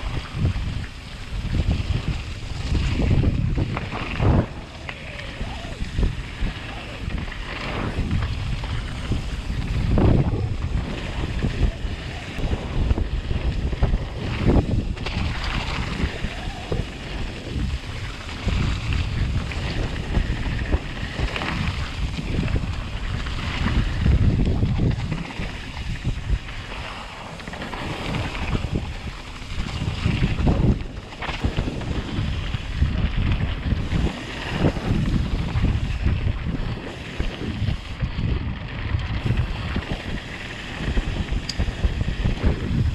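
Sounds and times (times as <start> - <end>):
wind on microphone: 0.0 - 42.9
tyre noise on dirt: 0.1 - 42.9.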